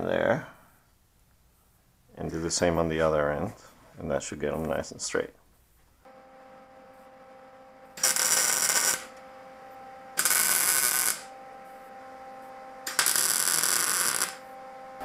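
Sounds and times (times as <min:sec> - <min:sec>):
faint steady hum: 0:00.0 - 0:15.0
welding arc crackle: 0:07.8 - 0:09.2, 0:10.1 - 0:11.3, 0:12.8 - 0:14.5.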